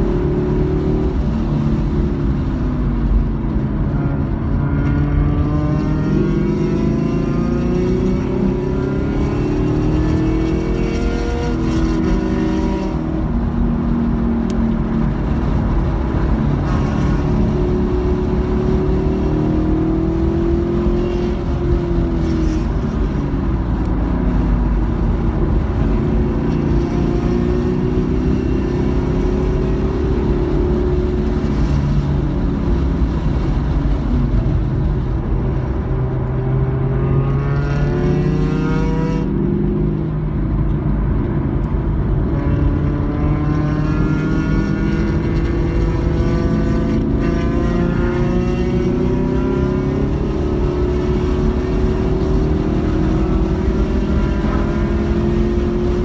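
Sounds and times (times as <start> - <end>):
wind and road noise: 0.0 - 56.0
car engine revving hard: 36.7 - 39.3.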